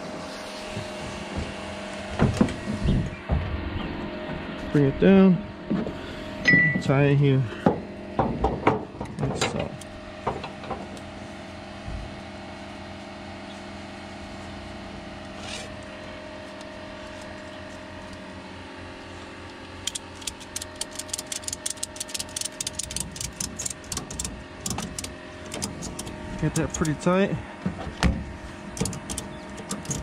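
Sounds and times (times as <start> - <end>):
steady low hum: 0.0 - 30.0
ratchet strap clicking: 19.7 - 27.0, 28.8 - 30.0.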